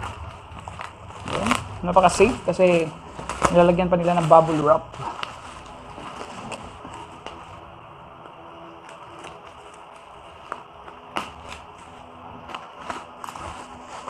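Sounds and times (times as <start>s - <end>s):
bubble wrap crinkling: 0.0s - 14.0s.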